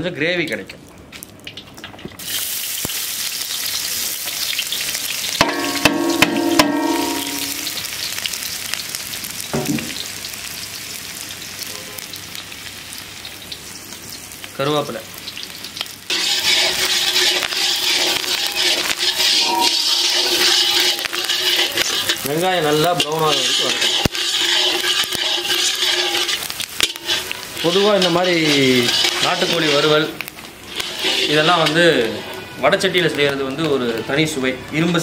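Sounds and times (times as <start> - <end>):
shallots sizzling in hot oil: 0.4 - 35.0
ladle stirring: 16.1 - 32.4.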